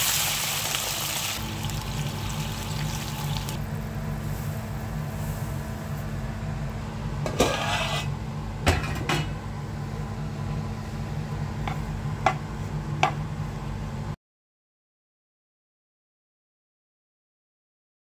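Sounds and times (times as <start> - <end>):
steady low hum: 1.4 - 14.2
utensil scraping a wok: 7.2 - 8.2.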